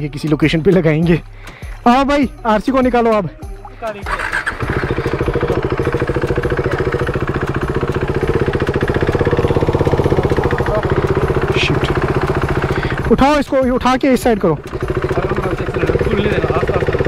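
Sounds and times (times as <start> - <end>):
motorcycle engine running: 1.1 - 17.0.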